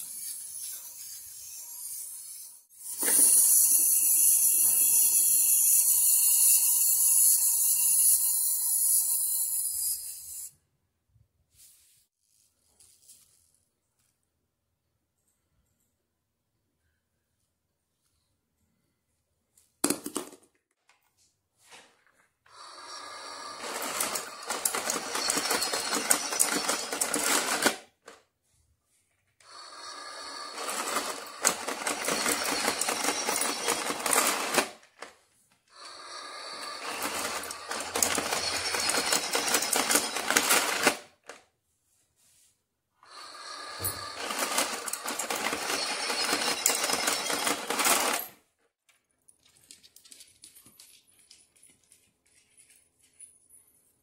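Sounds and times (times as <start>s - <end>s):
mechanical whirring rattle: 23.1s - 27.8s, 29.7s - 35.1s, 35.7s - 41.0s, 43.1s - 48.3s.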